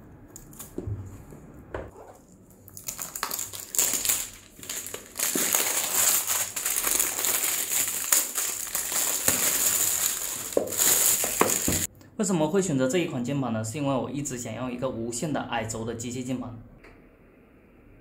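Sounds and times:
plastic film crinkling: 1.9 - 11.9.

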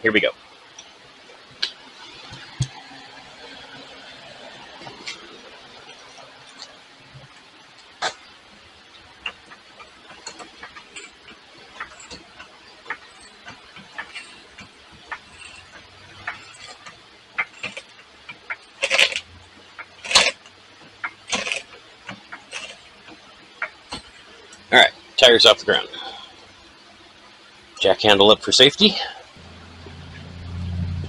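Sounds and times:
floor jack being pumped: 10.1 - 21.7.

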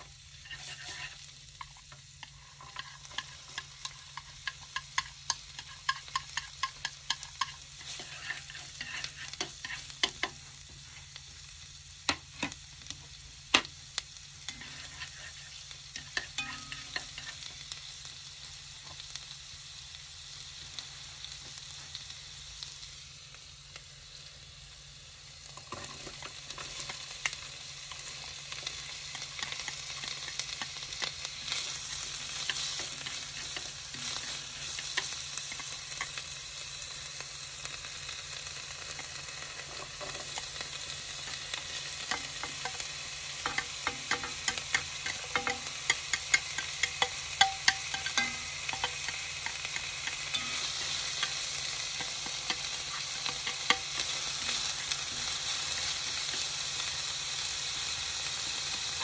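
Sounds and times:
vegetables sizzling in a pan: 0.0 - 59.0
chopsticks scraping and tapping: 0.4 - 10.4, 14.5 - 17.5, 29.1 - 36.2, 41.2 - 56.5.

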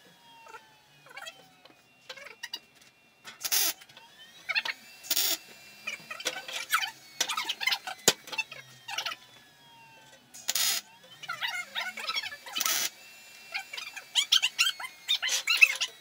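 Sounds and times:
gliding squeaky tones: 0.4 - 2.7, 13.5 - 16.0
welding arc hiss and crackle: 3.4 - 3.8, 5.0 - 8.2, 10.4 - 10.9, 12.4 - 16.0.

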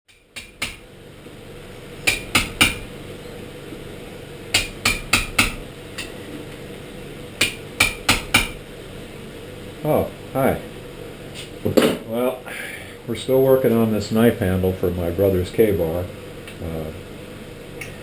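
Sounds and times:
hammer striking metal: 0.1 - 0.8, 2.0 - 2.9, 4.5 - 6.1, 7.4 - 8.6.

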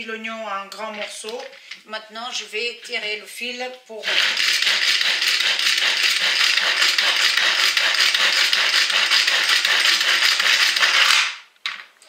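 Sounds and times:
food chopper blades rattling: 4.0 - 11.2.

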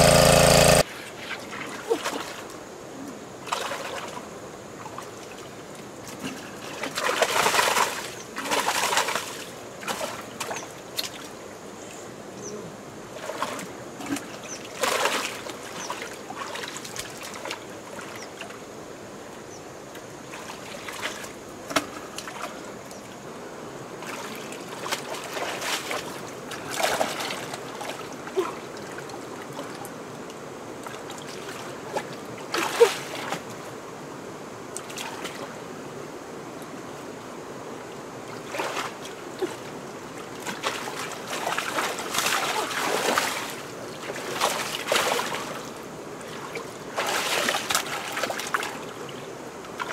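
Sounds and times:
hands splashing in shallow water: 40.4 - 45.7, 46.3 - 48.8.

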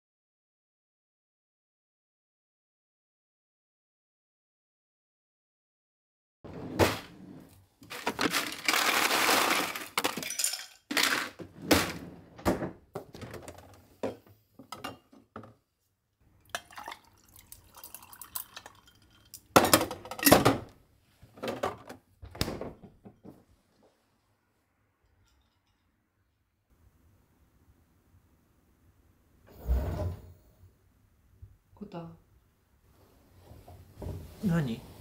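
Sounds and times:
bottles and dishes clinking: 9.9 - 10.9, 17.7 - 20.7.

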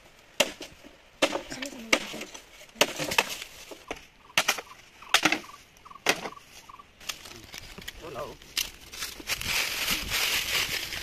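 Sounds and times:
axe chopping wood: 0.4 - 5.4.

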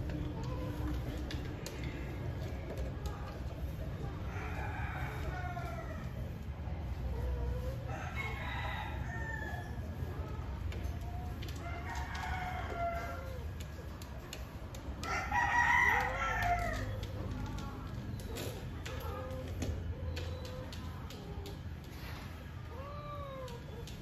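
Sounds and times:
cat yowling: 22.6 - 24.0.

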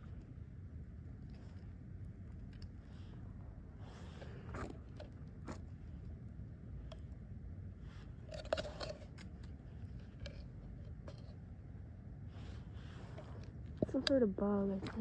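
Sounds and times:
low steady rumble: 0.0 - 15.0
handling clicks and scrapes: 7.8 - 11.5, 12.3 - 15.0.

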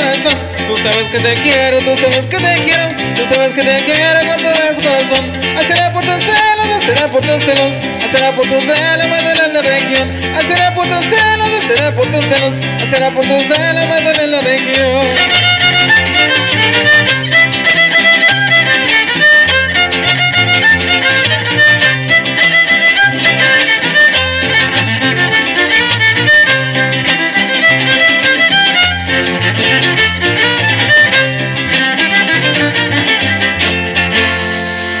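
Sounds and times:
stepping bass line: 0.0 - 35.0
strummed guitar: 0.0 - 35.0
violin melody: 15.0 - 35.0.

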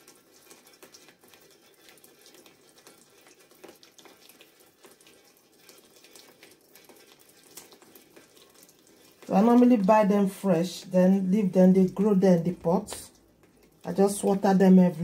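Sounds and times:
tap water splashing in sink: 0.0 - 10.0.

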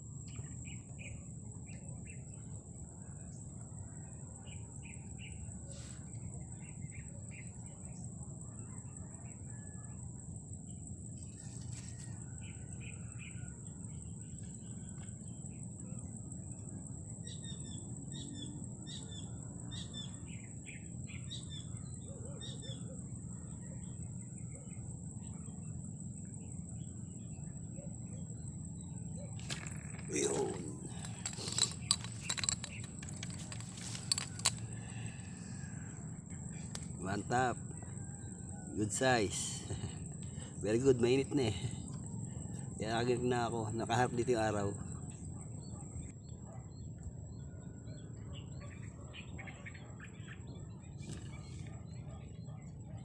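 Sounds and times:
low outdoor rumble: 23.0 - 42.9
birds chirping: 28.2 - 45.8.

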